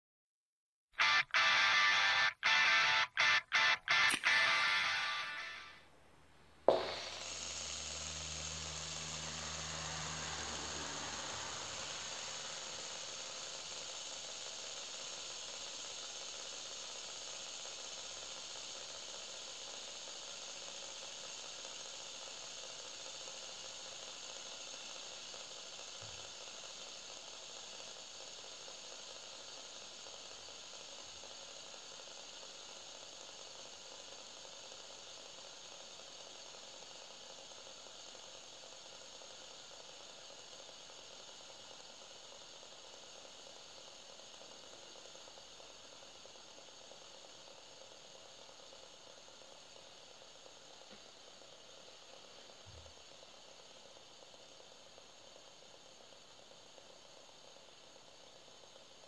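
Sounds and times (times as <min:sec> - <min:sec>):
fidget spinner flick click: 0:03.9 - 0:05.3
fidget spinner whirring: 0:06.7 - 0:16.3.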